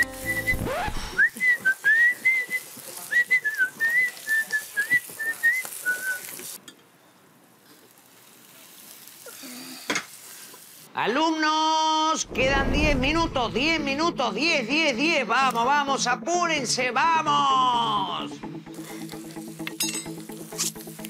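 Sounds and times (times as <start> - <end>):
person whistling a tune: 0.0 - 6.2.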